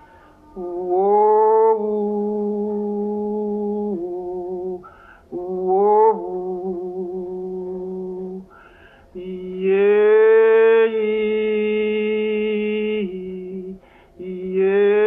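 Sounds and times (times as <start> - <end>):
singer breathing: 0.0 - 0.4, 4.8 - 5.3, 8.5 - 9.2, 13.8 - 14.2
wordless solo voice singing: 0.0 - 15.0.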